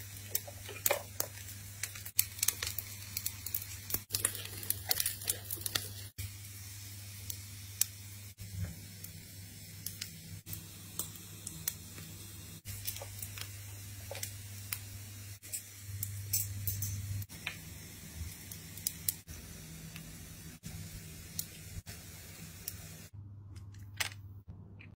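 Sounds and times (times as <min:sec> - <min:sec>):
meat sizzling: 0:00.0 - 0:23.1
oven low hum: 0:00.0 - 0:24.9.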